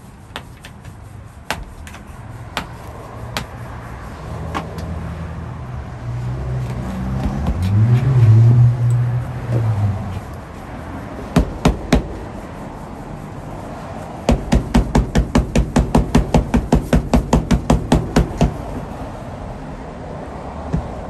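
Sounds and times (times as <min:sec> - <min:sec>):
hammer strikes: 0:00.3 - 0:03.6, 0:07.2 - 0:07.8, 0:11.3 - 0:12.2, 0:14.3 - 0:18.7.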